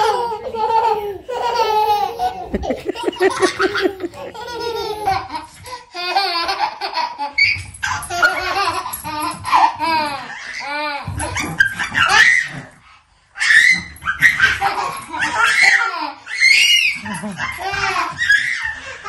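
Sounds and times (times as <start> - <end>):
babies laughing: 0.0 - 7.4, 13.6 - 19.0.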